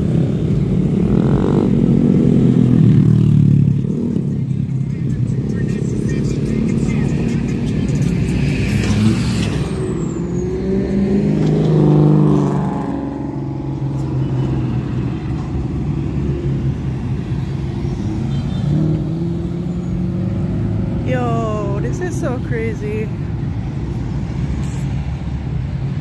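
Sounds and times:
cars and motorcycles passing: 0.0s - 26.0s
loud engine passing by: 5.5s - 26.0s.

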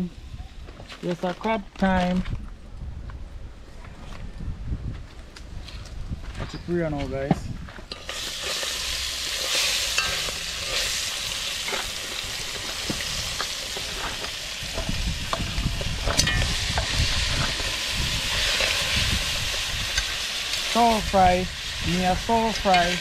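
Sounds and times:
crab frying in hot oil: 7.9s - 23.0s.

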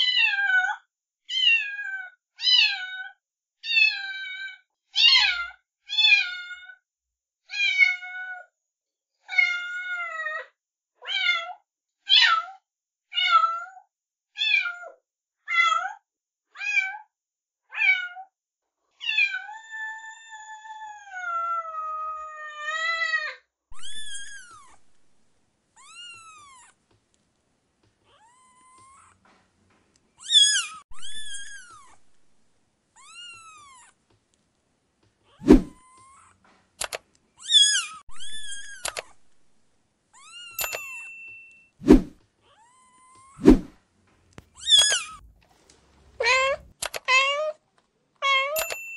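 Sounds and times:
cat meowing: 0.0s - 3.1s, 3.7s - 6.8s, 17.7s - 18.3s, 19.0s - 24.9s, 25.8s - 26.7s, 28.1s - 29.2s, 30.2s - 32.1s, 33.0s - 34.0s, 35.3s - 36.4s, 37.4s - 39.2s, 44.6s - 45.3s, 46.2s - 47.6s.

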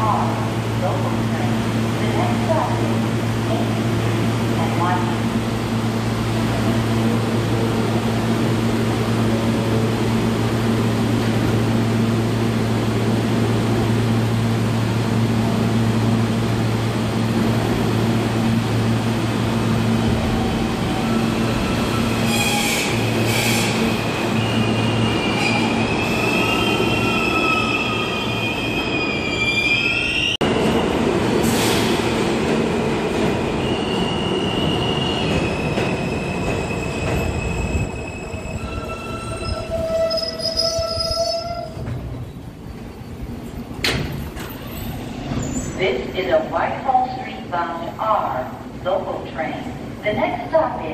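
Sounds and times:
rumble of train cars: 0.0s - 50.9s
subway train humming: 0.0s - 50.9s
train wheels squealing: 21.6s - 30.4s, 33.6s - 43.2s.

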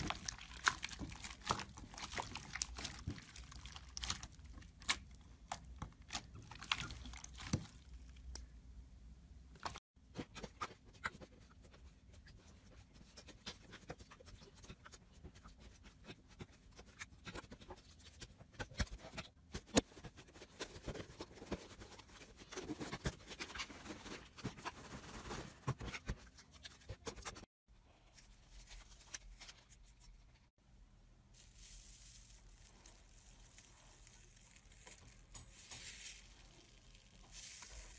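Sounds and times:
slime crackling and popping: 0.0s - 8.4s, 31.4s - 37.9s.

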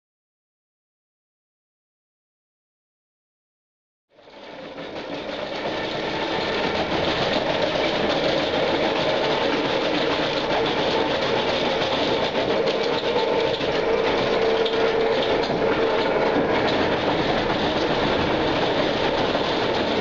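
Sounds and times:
steady machine hum: 4.2s - 20.0s.

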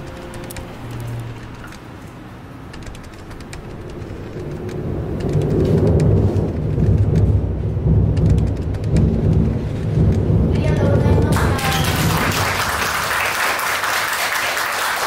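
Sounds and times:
light crackle: 0.0s - 10.6s
thunder rumbling: 2.7s - 13.5s.

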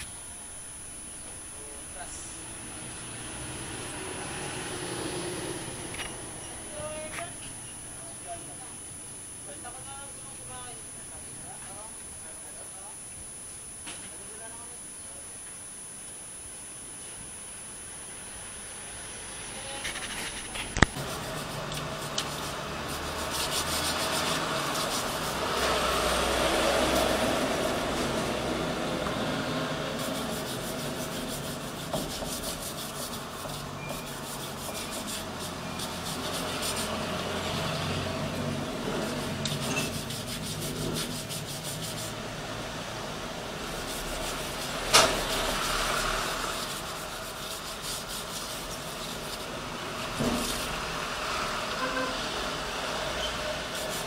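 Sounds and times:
hand scraping battery terminal: 19.7s - 26.0s, 29.9s - 37.0s, 39.0s - 42.2s, 43.7s - 49.5s.

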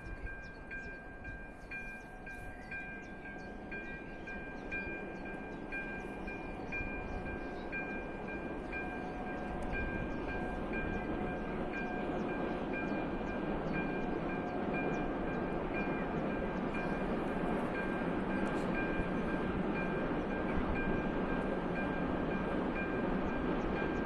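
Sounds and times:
level crossing warning bell: 0.0s - 24.0s
train rumble: 0.0s - 24.0s.

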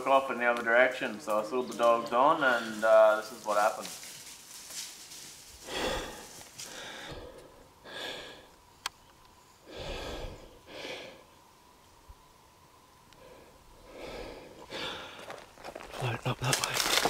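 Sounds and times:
person breathing hard: 5.6s - 8.5s, 9.6s - 11.3s, 13.2s - 15.4s.

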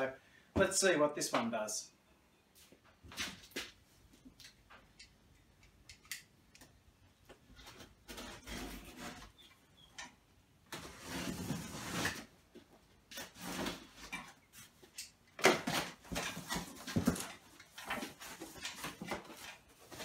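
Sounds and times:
cardboard scraping and rustling: 7.6s - 9.4s, 10.7s - 12.3s, 13.1s - 14.7s, 15.6s - 20.0s.

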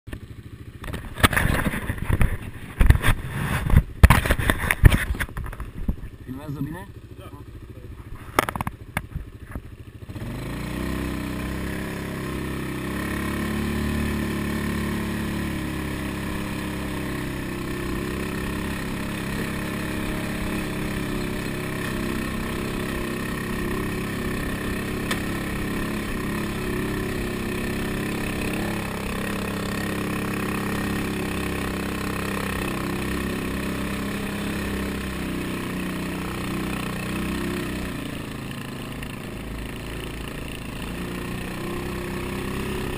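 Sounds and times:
atv engine running under load: 0.1s - 42.9s.

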